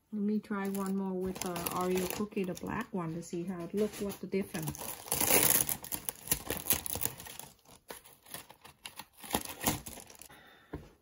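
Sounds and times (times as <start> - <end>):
plastic packaging crinkling: 0.6 - 3.0, 3.6 - 10.3.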